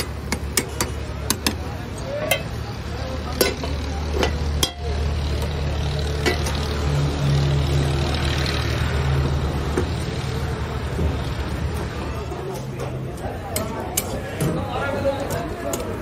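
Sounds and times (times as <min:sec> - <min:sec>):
metal utensils clinking on woks: 0:00.0 - 0:07.1, 0:12.4 - 0:16.0
low engine hum: 0:02.7 - 0:13.2.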